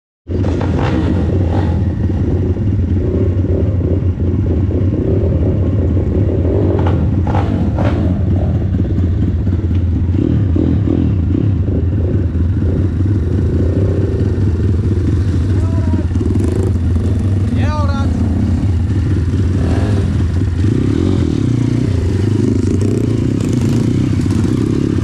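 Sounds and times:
motorbike engines idling: 0:11.2 - 0:25.0.

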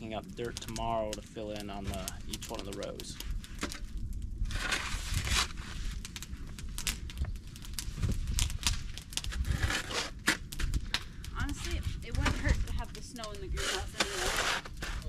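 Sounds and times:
knocks and crunches: 0:03.2 - 0:12.8
shovel scraping sawdust: 0:13.6 - 0:15.0.

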